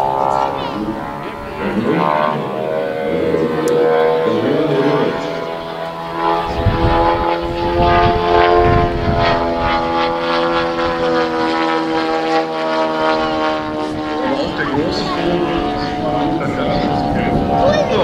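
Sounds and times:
low rumbling noise: 0.0 - 18.0
model plane engine drone: 0.0 - 18.0.

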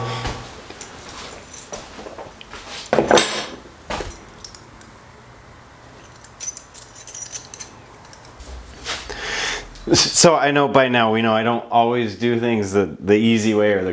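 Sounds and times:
metal tools clattering: 0.8 - 4.9, 5.9 - 8.4.

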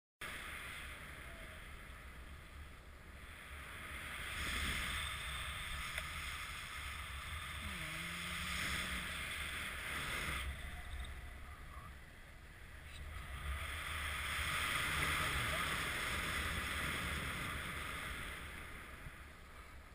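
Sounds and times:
wind rushing over microphone: 0.2 - 19.9.

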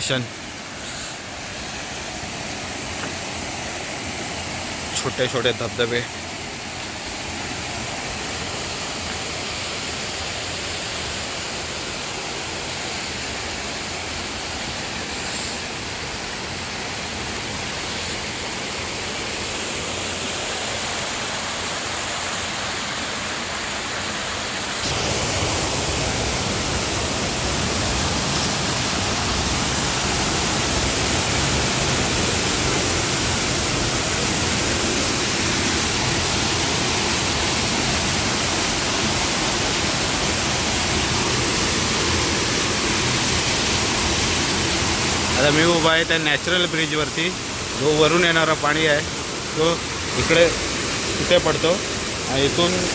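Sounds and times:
waterfall rushing over rock: 0.0 - 52.9.

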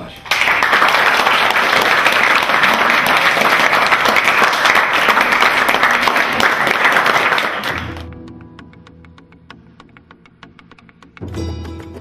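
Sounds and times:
children clapping: 0.2 - 8.1
soft music: 7.7 - 12.0.

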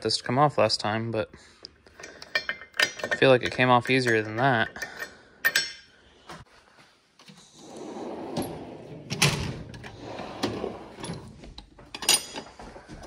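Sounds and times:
metal clanks: 1.9 - 5.9, 11.0 - 12.6
drawers sliding on runners: 7.5 - 11.4.

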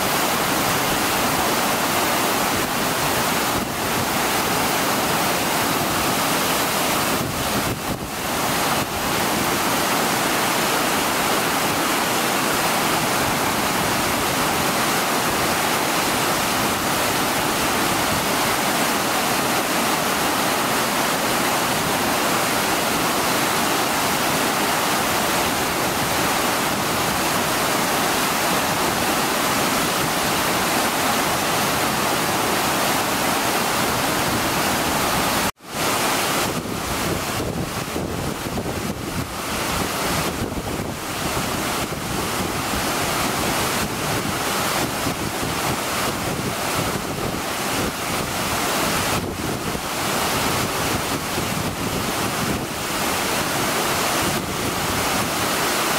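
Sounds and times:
waterfall rushing: 0.0 - 55.9.

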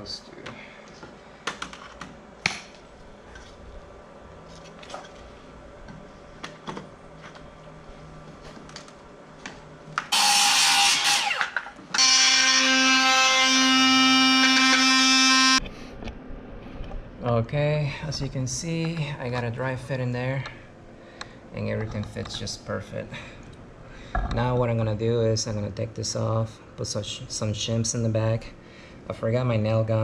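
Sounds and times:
oscillating multi-tool cutting: 10.1 - 15.6.

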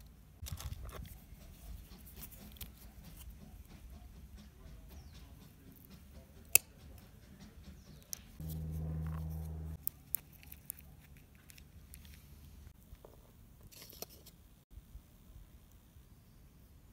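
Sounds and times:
low steady hum: 7.0 - 13.6
handling clicks and rustles: 7.9 - 14.4.

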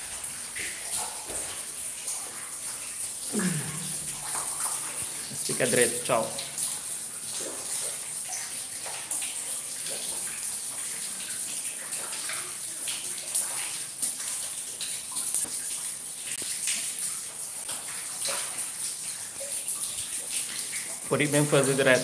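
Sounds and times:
rain splashing on wet concrete: 0.0 - 22.0.

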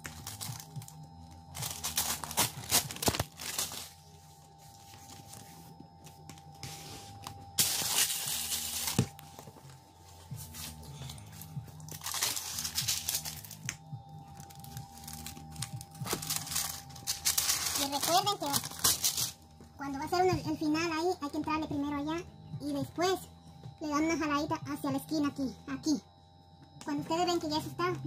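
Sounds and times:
paper crinkling and tearing: 0.0 - 4.0, 6.7 - 9.2, 10.5 - 13.6, 14.4 - 19.4.

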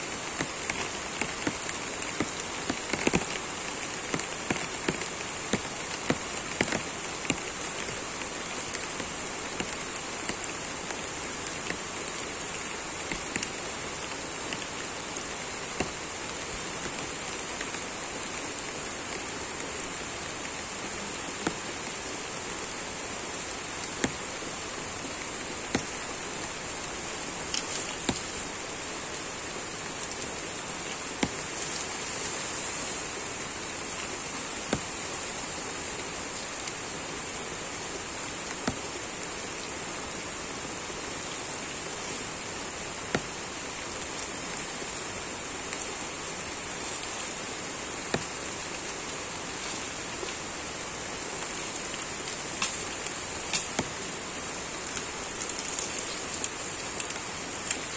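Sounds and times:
rain falling on vegetation: 0.0 - 57.9
sharp raindrop taps: 0.3 - 20.6.

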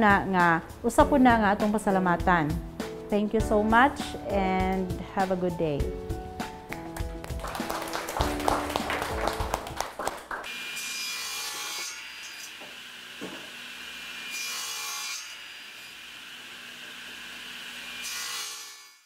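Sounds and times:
music: 0.0 - 10.5
people clapping: 6.7 - 10.5.

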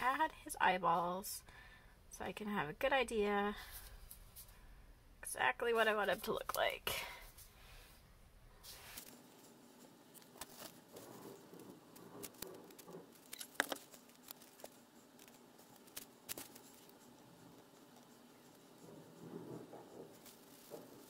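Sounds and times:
paper rustling: 8.6 - 21.0.

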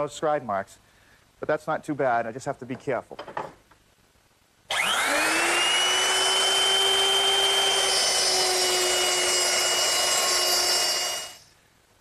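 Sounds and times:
electric router whining: 4.7 - 11.4.

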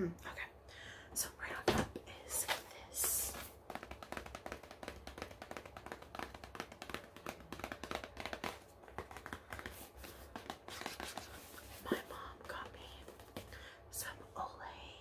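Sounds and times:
fingernails tapping cardboard box: 3.7 - 9.8.

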